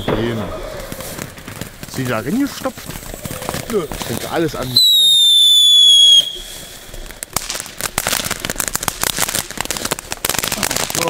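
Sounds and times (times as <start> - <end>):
firework whistle: 0.0 - 0.5, 4.6 - 7.1
firework crackling: 0.0 - 11.0.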